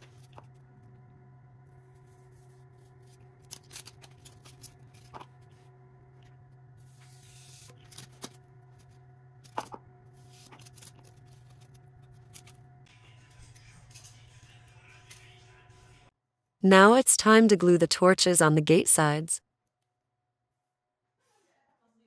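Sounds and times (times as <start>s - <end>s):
steady low hum: 0.0s - 16.1s.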